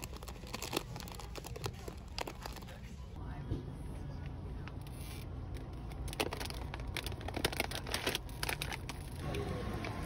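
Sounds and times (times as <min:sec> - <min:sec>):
crinkling and rustling: 0:00.0 - 0:03.0, 0:04.9 - 0:09.3.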